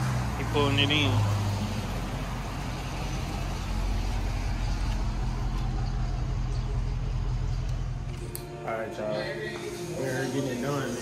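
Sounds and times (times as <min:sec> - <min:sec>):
car engine rumbling at low revs: 0:00.0 - 0:08.1.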